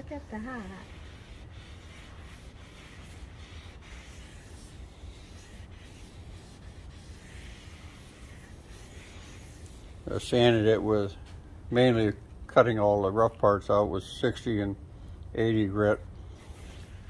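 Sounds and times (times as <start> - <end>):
cloth rag rubbing on wood: 0.0 - 11.2, 16.3 - 17.0
low background rumble: 0.0 - 17.0.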